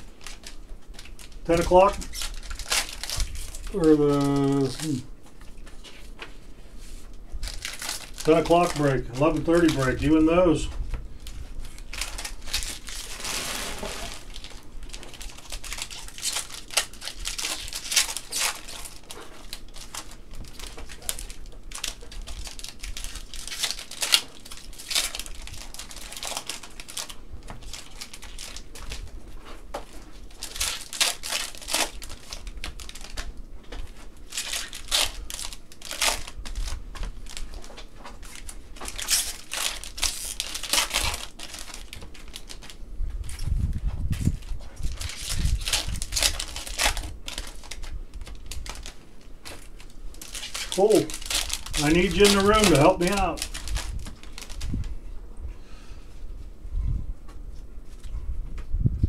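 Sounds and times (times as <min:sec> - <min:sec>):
pack wrappers crinkling: 0:00.0 - 0:55.0.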